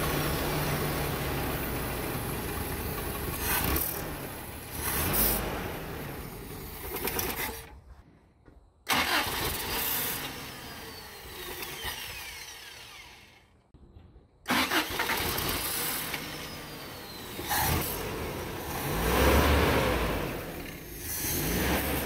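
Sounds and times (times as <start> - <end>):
pickup truck engine starting: 0.0 - 7.8, 8.9 - 13.4, 14.5 - 22.0.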